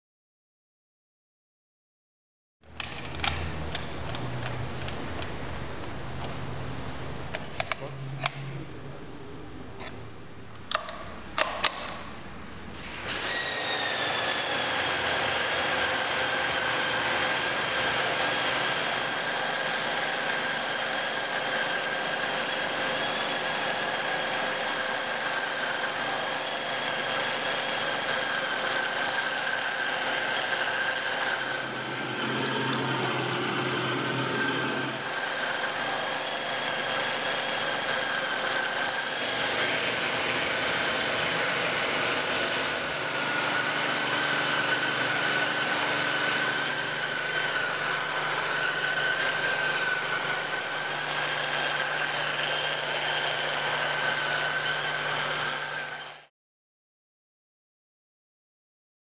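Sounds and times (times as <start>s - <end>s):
pressure washer whine: 2.7s - 12.1s, 12.7s - 56.2s.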